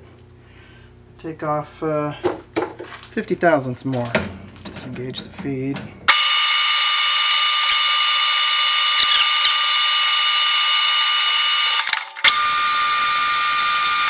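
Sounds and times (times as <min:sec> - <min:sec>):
lathe cutting metal rod whine: 0:06.1 - 0:14.0.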